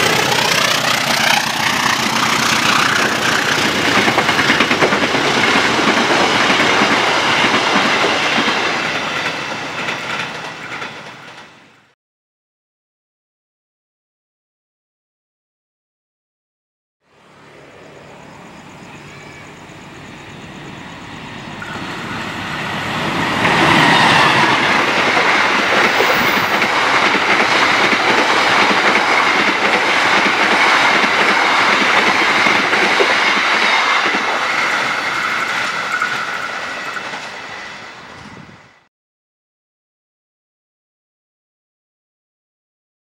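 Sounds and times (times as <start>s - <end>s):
train passing at speed: 0.0s - 12.0s, 17.1s - 38.9s
high ringing wheel noise: 17.2s - 26.8s, 33.6s - 38.4s.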